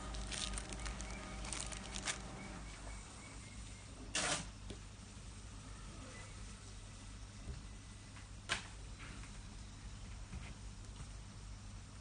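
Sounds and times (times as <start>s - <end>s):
plastic bags crinkling: 0.0s - 2.6s.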